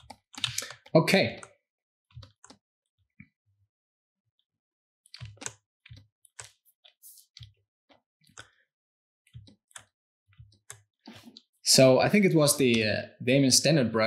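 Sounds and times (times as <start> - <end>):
computer mouse and keyboard clicks: 0.0 - 2.6, 5.1 - 7.6, 9.3 - 11.4.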